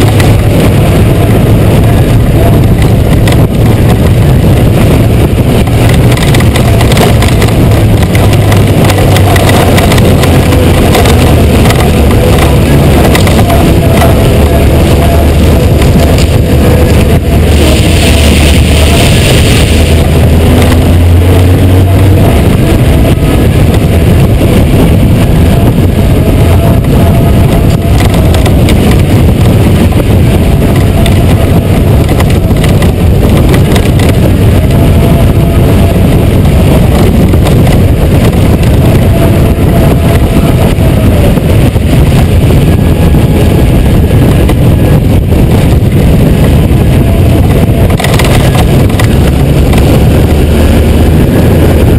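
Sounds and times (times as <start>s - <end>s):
motorcycle engine running: 0.0s - 51.9s
wind and road noise: 0.0s - 51.9s.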